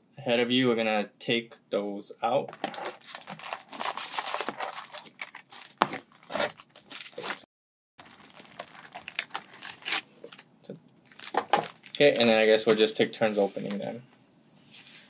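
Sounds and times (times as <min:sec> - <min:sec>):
foil packs crinkling: 0:02.5 - 0:07.4, 0:08.0 - 0:10.4, 0:11.0 - 0:12.8.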